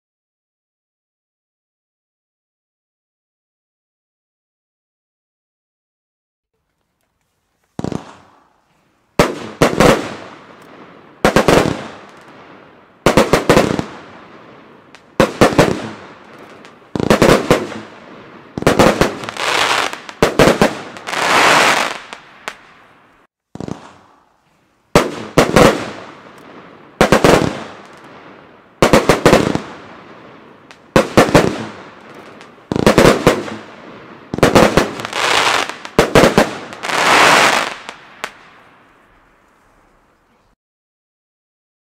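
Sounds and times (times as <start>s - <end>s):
firework shots: 7.8s - 8.5s, 9.2s - 24.3s, 24.9s - 38.8s
firework effects bursting overhead: 7.8s - 39.0s.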